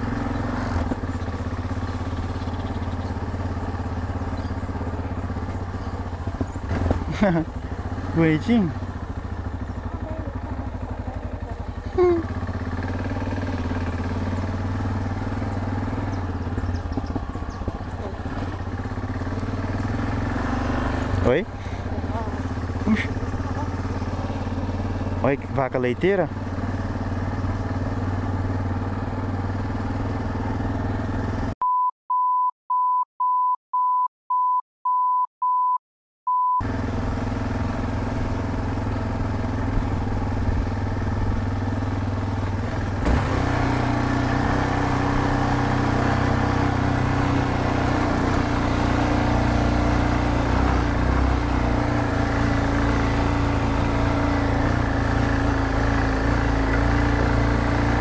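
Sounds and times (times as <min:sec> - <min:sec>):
motorcycle engine running: 0:00.0 - 0:31.6, 0:36.6 - 0:58.0
short beeps: 0:31.6 - 0:36.6.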